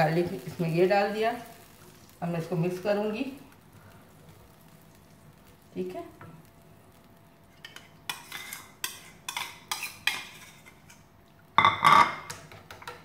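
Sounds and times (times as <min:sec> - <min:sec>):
spoon clattering against a pan: 0:07.6 - 0:10.7
metal spoon scraping a bowl: 0:07.6 - 0:10.9.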